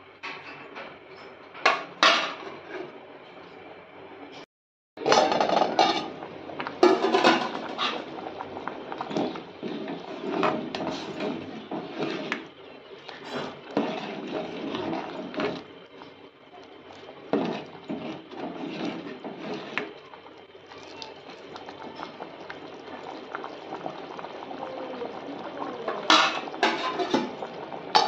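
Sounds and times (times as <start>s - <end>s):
ladle scraping metal pot: 5.0s - 6.2s, 8.9s - 15.7s, 16.9s - 20.0s, 26.0s - 28.0s
thick lentils sloshing: 13.4s - 15.6s.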